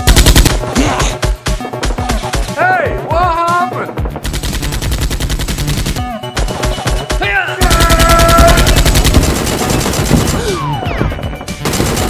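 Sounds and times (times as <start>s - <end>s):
automatic gunfire bursts: 0.0s - 0.6s, 4.2s - 6.1s, 7.6s - 10.6s, 11.6s - 12.0s.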